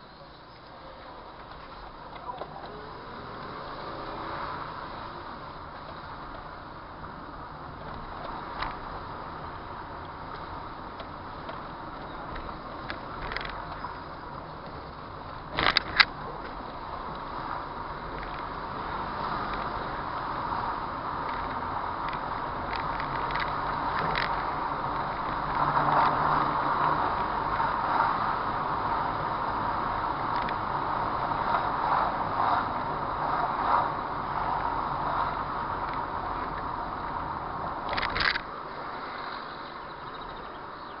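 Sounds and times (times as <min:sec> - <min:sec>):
tyres rumbling on brick paving: 0:00.0 - 0:41.0
clicks and rattles in car: 0:37.8 - 0:38.5.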